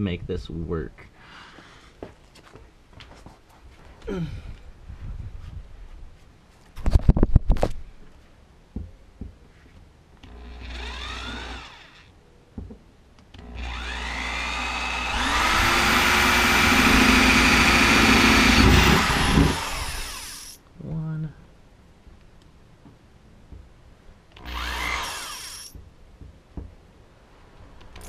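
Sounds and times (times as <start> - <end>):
cordless drill motor whine: 10.2 - 12.1, 13.4 - 20.6, 24.4 - 25.8.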